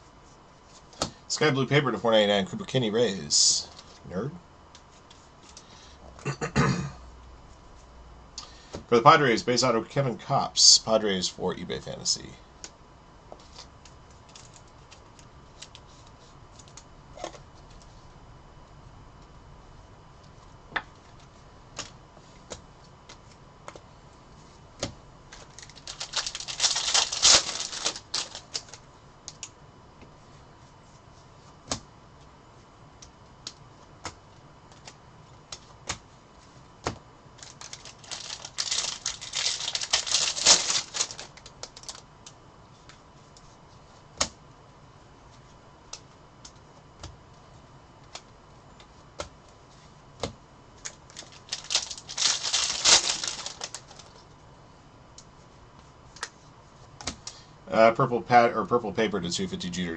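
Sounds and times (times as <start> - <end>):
dense rustling of cards: 13.3 - 18.1, 20.3 - 29.5, 33.8 - 42.1, 48.1 - 54.4.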